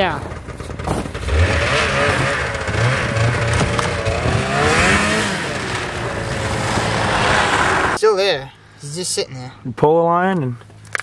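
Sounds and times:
snowmobile engine revving: 1.1s - 8.0s.

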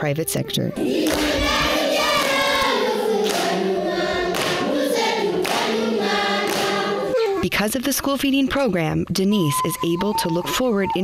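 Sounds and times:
choir singing: 0.8s - 7.3s.

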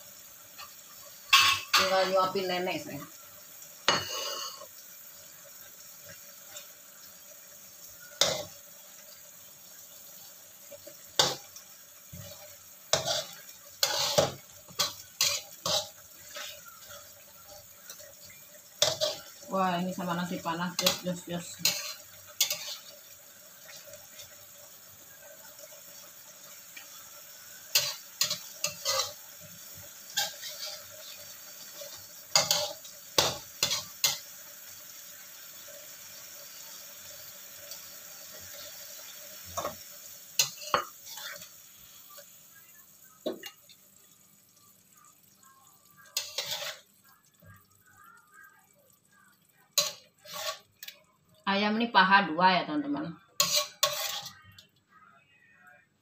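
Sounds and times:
steady sizzle: 0.0s - 56.0s
metal utensils clinking on dishes: 0.6s - 2.1s, 8.1s - 8.6s, 12.1s - 19.4s, 20.6s - 22.9s, 27.7s - 29.2s, 31.8s - 34.2s, 46.1s - 46.9s, 49.8s - 51.0s, 53.4s - 54.5s.

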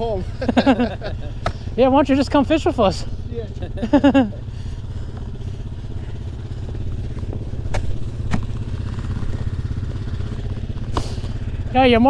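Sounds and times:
atv engine idling: 0.0s - 12.0s.

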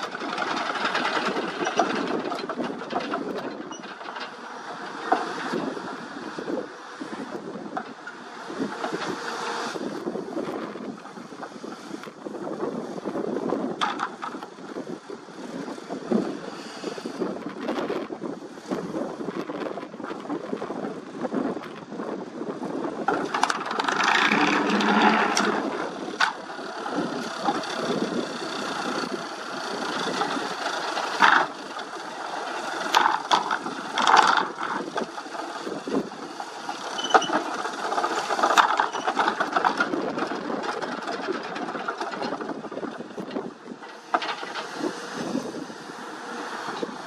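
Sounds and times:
excavator engine running: 0.0s - 47.0s
rattling metal clatter: 23.1s - 26.4s.

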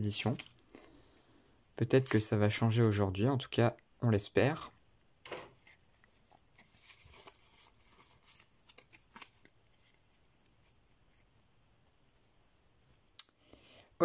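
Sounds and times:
trading cards rustling and clicking: 5.3s - 10.1s.

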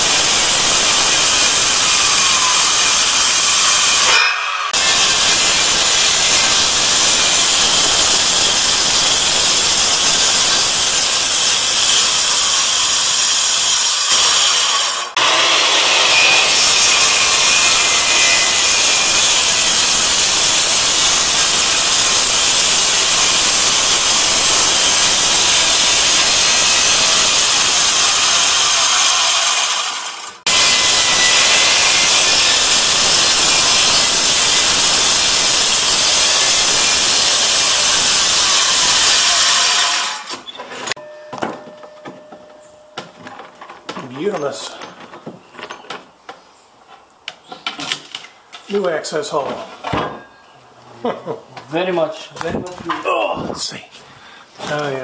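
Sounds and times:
circular saw cutting wood: 0.0s - 40.5s.

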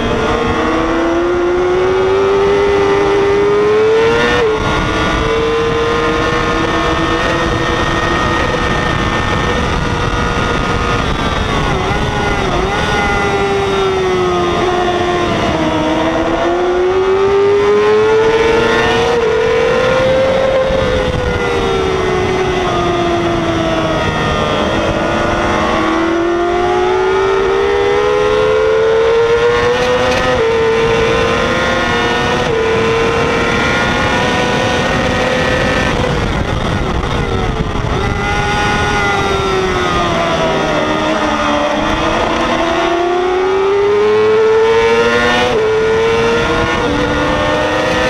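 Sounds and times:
motorcycle engine at racing revs: 0.0s - 48.0s.

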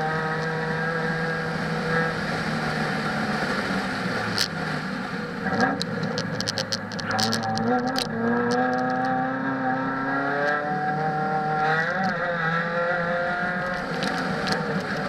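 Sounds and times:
car engine at high revs: 0.0s - 15.0s
sharp clicks: 5.6s - 9.1s.

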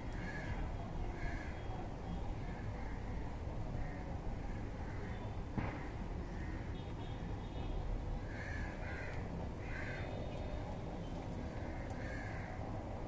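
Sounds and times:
crow cawing: 0.2s - 0.6s, 8.2s - 10.1s, 11.5s - 12.6s.

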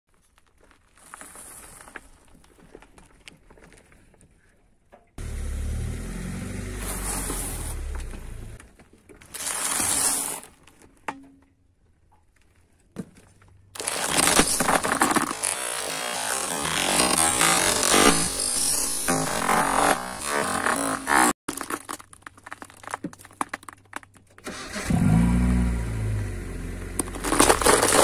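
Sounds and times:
crackers crunching under tyre: 0.1s - 4.2s, 13.2s - 25.6s, 26.9s - 28.0s
car engine running low: 5.2s - 8.6s
candy-coated chocolates cracking: 21.5s - 24.4s.

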